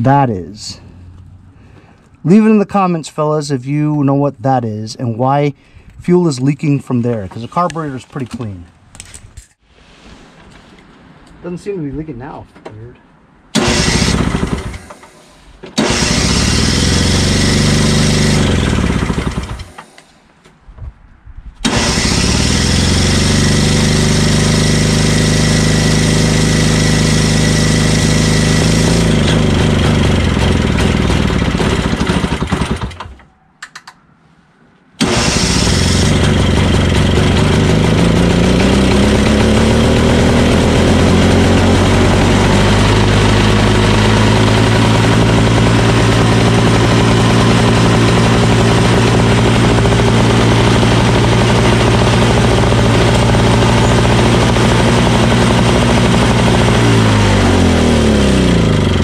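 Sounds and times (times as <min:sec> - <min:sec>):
snowblower engine running: 0:13.6 - 0:15.2, 0:15.8 - 0:20.1, 0:21.6 - 0:33.2, 0:35.0 - 0:59.0.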